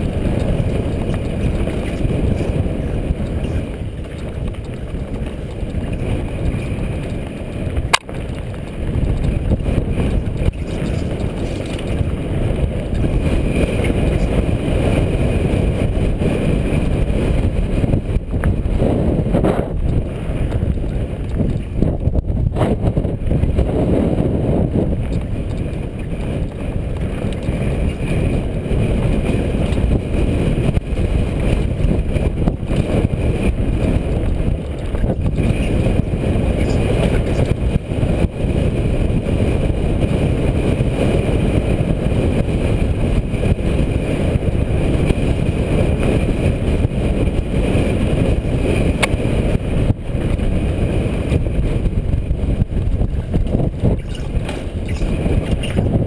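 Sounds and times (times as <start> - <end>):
tyres on dirt: 0.0 - 21.8, 52.5 - 56.0
bike rattling over bumps: 0.0 - 56.0
wind rumble on microphone: 0.0 - 56.0.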